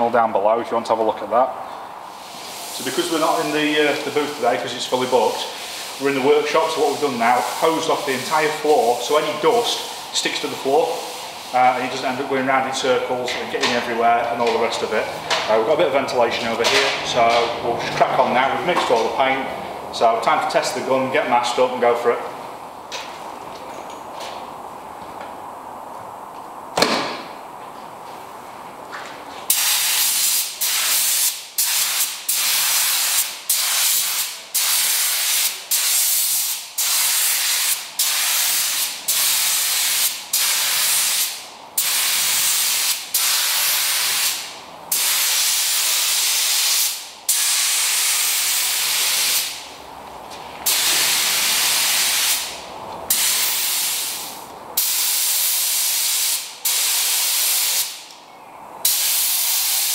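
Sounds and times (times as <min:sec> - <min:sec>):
paint spray gun hissing: 0:29.5 - 0:49.6, 0:50.7 - 0:58.0, 0:58.8 - 0:59.9.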